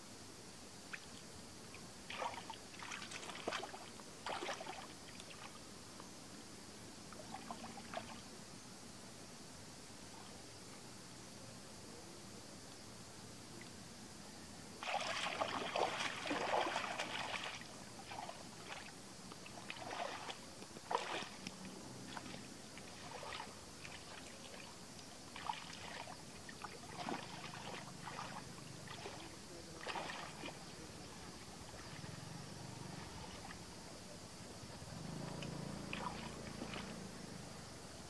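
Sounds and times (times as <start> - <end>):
muddy water splashing: 2.1 - 5.7, 14.8 - 33.6, 35.0 - 37.2.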